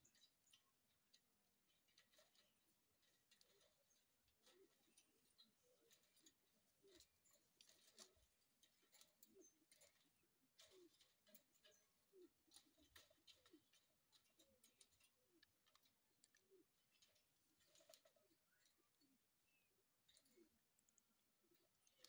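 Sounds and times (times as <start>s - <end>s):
parakeets scratching on wire cage: 1.2s - 18.8s.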